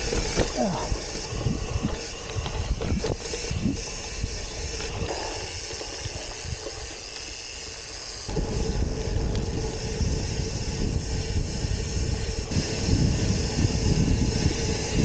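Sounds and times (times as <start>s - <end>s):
wind on microphone: 0.0s - 5.2s, 8.3s - 15.0s
bike tyres on dirt trail: 0.0s - 15.0s
tyres rumbling on pavement: 0.0s - 15.0s.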